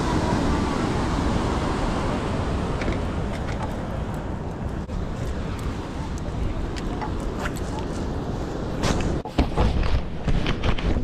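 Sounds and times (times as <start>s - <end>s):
surf washing: 0.0s - 9.2s.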